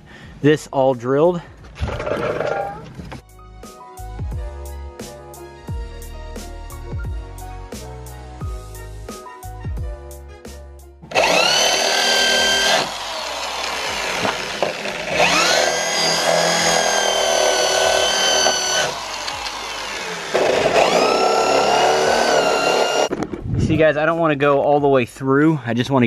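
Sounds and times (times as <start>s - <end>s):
electric drill drilling metal: 11.1s - 23.1s.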